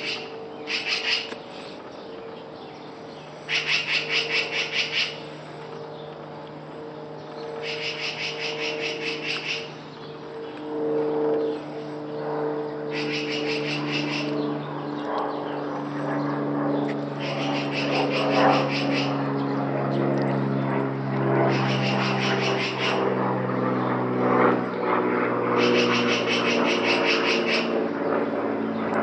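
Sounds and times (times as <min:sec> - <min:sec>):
magpie harsh rattling chatter: 0:00.0 - 0:01.4, 0:03.5 - 0:05.3, 0:07.6 - 0:09.8, 0:12.9 - 0:14.3, 0:17.2 - 0:19.1, 0:21.5 - 0:23.0, 0:25.6 - 0:27.7
propeller aircraft droning overhead: 0:00.0 - 0:29.0.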